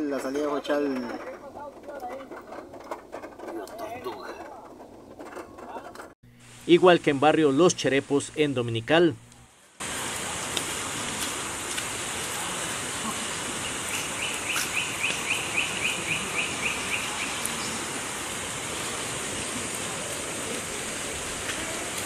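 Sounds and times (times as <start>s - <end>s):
floodwater rushing over gravel: 9.8s - 22.0s
bird chirping: 13.6s - 17.9s.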